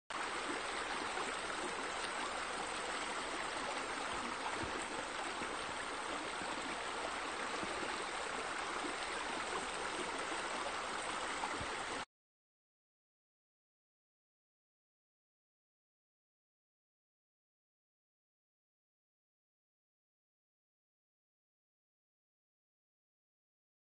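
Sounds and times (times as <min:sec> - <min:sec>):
running water splashing: 0:00.1 - 0:12.0.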